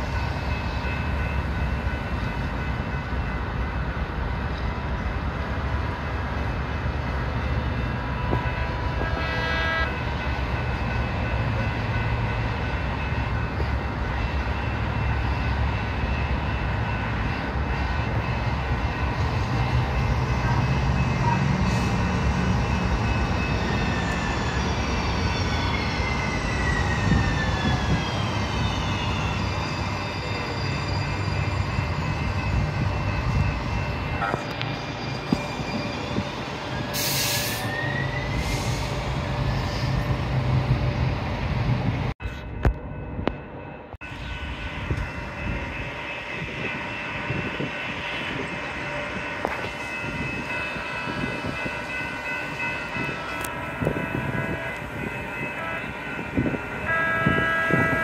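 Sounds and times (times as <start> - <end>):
high tones and rail noise: 0.0 - 58.0
wheel squeal: 23.1 - 32.7, 34.5 - 38.9.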